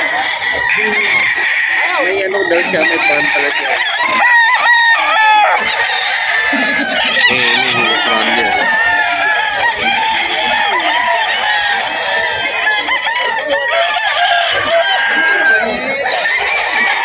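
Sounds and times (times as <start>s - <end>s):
roosters crowing: 0.0s - 17.0s.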